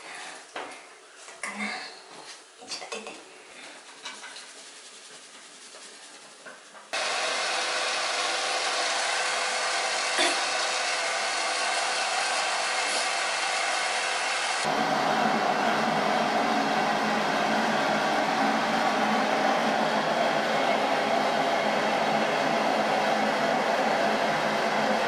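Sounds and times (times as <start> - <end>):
hair dryer blowing: 7.0 - 25.0.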